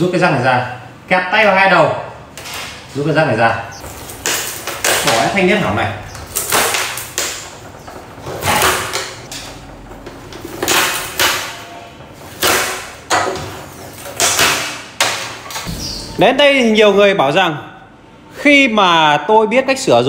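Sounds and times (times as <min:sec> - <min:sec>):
strips ripping off metal: 0:03.9 - 0:05.5, 0:06.1 - 0:09.7, 0:10.5 - 0:15.8.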